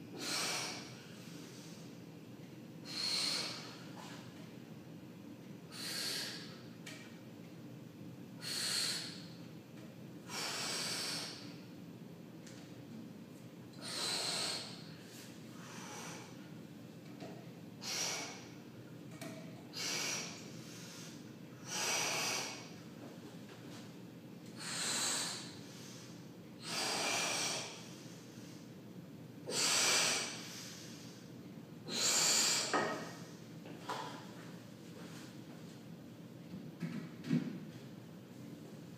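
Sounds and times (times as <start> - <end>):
heavy breathing: 13.8 - 16.4, 24.6 - 28.7.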